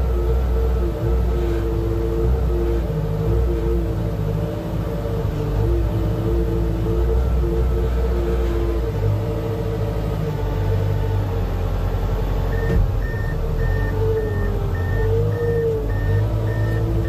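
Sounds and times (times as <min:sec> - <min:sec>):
aircraft tractor engine rumbling: 0:00.0 - 0:17.0
reversing alarm beeping: 0:12.5 - 0:17.0.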